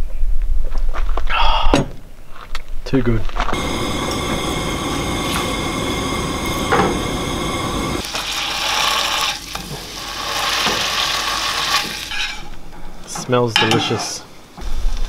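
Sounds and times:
low rumble: 0:03.5 - 0:08.1
patty sizzling in a frying pan: 0:08.0 - 0:12.5.

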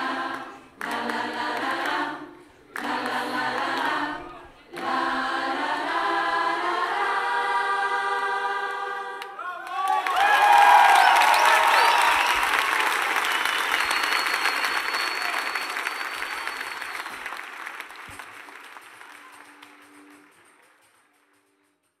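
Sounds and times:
large audience applauding: 0:09.4 - 0:22.0.

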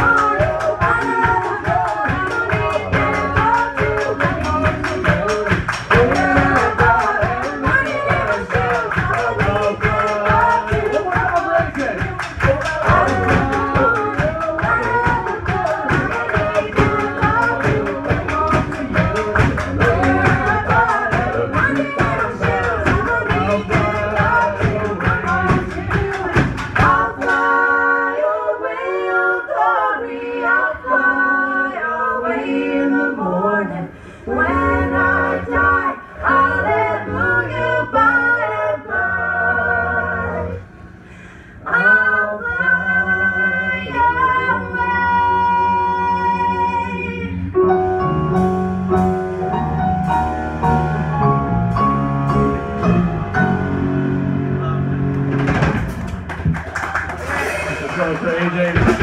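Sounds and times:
band playing bass and keyboards: 0:00.0 - 0:27.2, 0:47.5 - 0:59.0
woman singing lead: 0:00.0 - 0:40.6.

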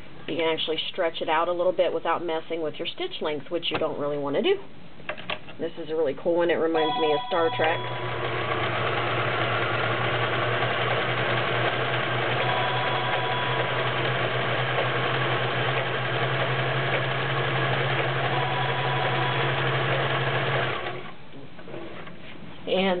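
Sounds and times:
sewing machine running: 0:07.5 - 0:21.1.

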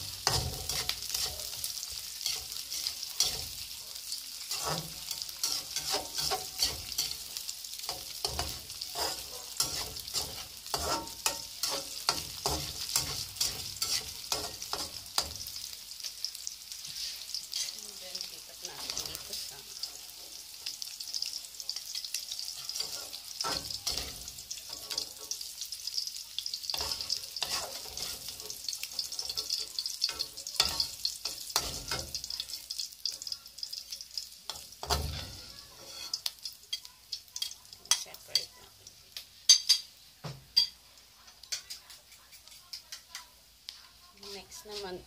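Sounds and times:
metal spatula scraping a wok: 0:00.0 - 0:15.7, 0:16.7 - 0:18.0, 0:21.7 - 0:25.5, 0:26.7 - 0:32.3, 0:34.5 - 0:36.8
food sizzling in hot oil: 0:00.0 - 0:45.0.

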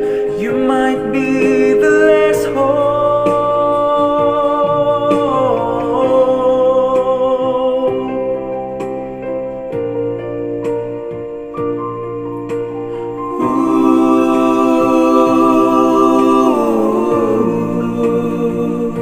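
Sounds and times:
man singing ballad: 0:00.0 - 0:08.8
electronic keyboard: 0:00.0 - 0:19.0.

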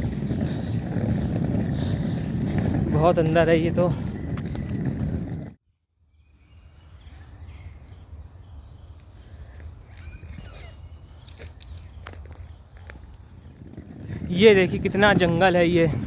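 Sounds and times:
high insect hum: 0:05.9 - 0:15.2
faint bird chirps: 0:06.0 - 0:13.8.

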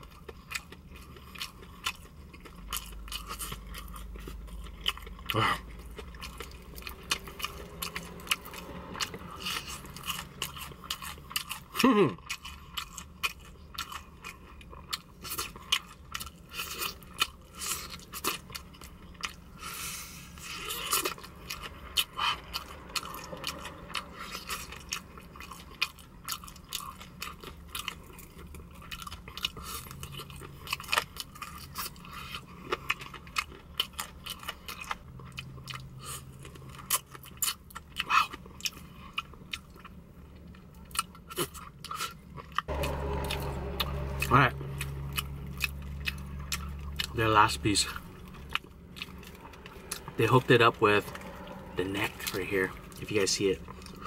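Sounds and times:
chewing and crunching: 0:00.0 - 0:54.0.

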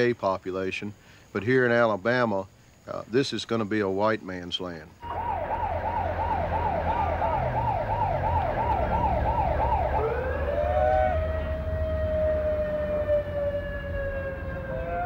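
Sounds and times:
police siren yelping: 0:05.0 - 0:15.0.

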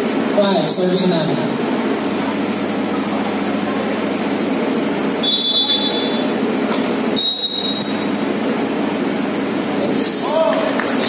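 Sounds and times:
referee's whistle blasts: 0:05.2 - 0:06.3, 0:07.2 - 0:08.2.

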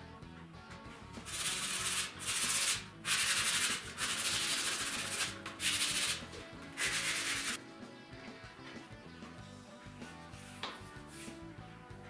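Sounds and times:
background music: 0:00.0 - 0:12.0
sanding block rubbing wood: 0:01.2 - 0:07.6.

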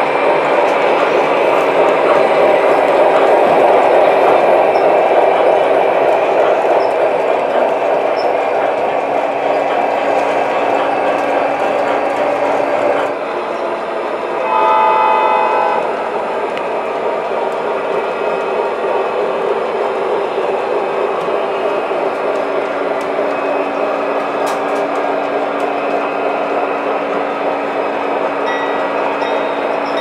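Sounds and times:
model train wheels rumbling: 0:00.0 - 0:30.0
model locomotive horn: 0:14.4 - 0:15.9.

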